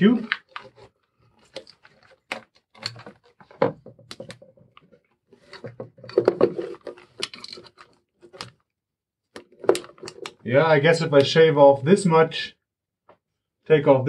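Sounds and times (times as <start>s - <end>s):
plastic hose rubbing and knocking: 0.0s - 8.5s.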